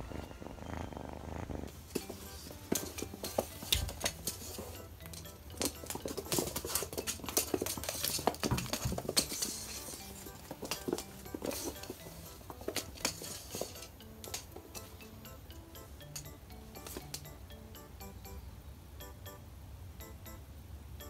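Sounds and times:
kitten purring: 0.0 - 3.2
soft background music: 0.0 - 20.6
paws scrabbling on wooden floor: 5.5 - 13.8.

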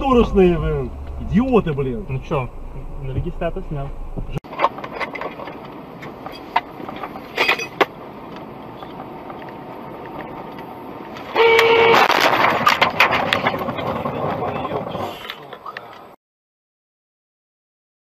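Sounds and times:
road noise: 0.0 - 16.2
car horn blast: 11.3 - 12.2
loud noisy clatter: 11.6 - 15.1.

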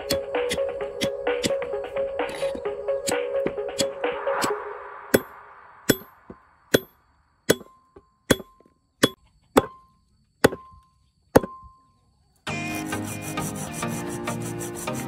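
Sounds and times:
tool striking hard object: 5.1 - 11.7.

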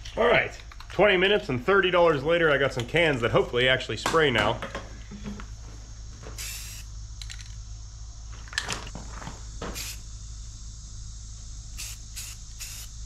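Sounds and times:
spray paint can hissing: 6.4 - 6.9, 9.8 - 10.1, 11.7 - 13.0.

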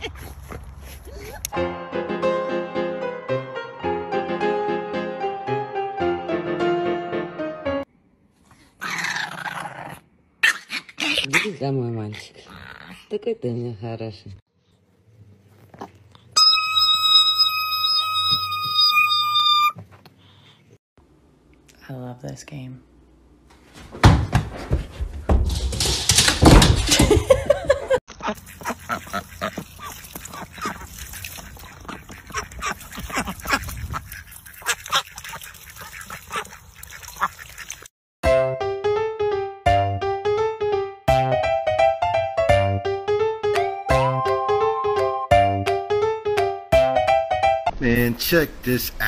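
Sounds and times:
ducks quacking: 28.1 - 37.8
water splashing: 28.2 - 37.9.

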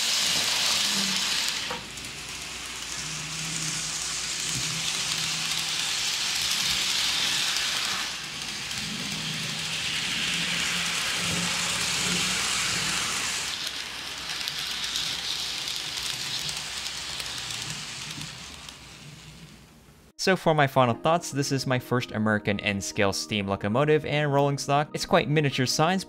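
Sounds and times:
model train wheels on rails: 0.0 - 20.1.

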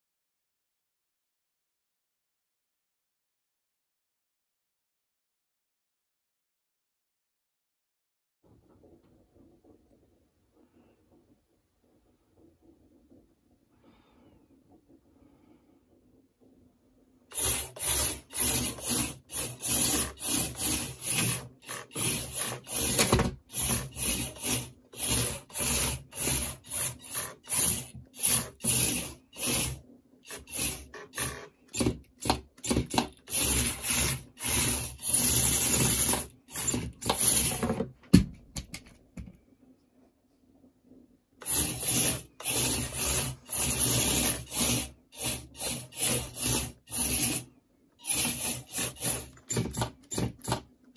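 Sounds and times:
small electric motors whirring: 17.3 - 31.9, 32.6 - 37.6, 41.4 - 50.6
wheels rubbing on wood: 17.3 - 37.8, 41.4 - 50.6.

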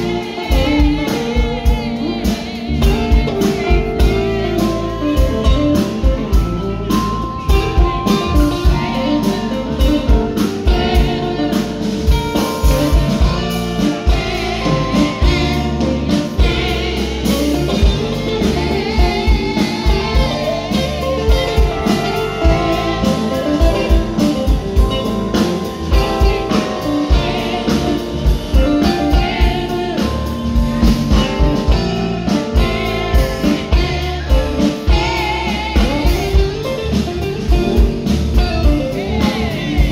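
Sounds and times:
live band playing: 0.0 - 39.9
person singing: 38.4 - 39.9.

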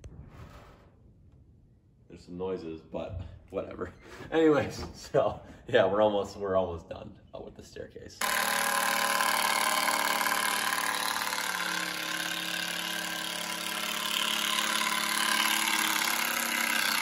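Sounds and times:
cordless drill driving screw into wood: 8.2 - 17.0.

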